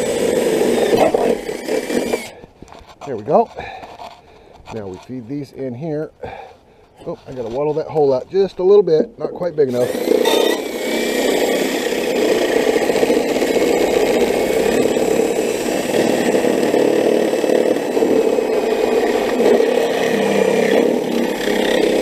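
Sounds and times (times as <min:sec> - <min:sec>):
cordless drill enlarging hole: 0:00.0 - 0:02.4, 0:09.7 - 0:22.0.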